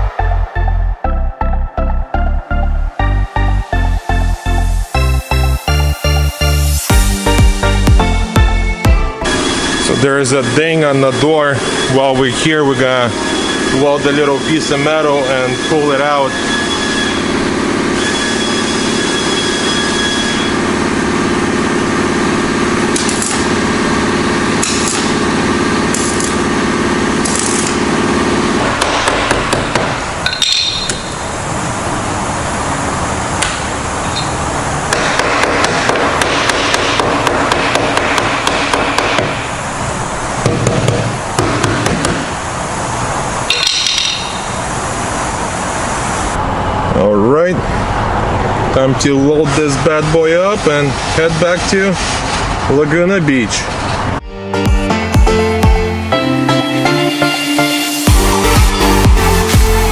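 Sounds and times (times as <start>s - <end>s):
steady hum: 0.0s - 52.7s
sharp metallic taps and clicks: 43.5s - 44.4s.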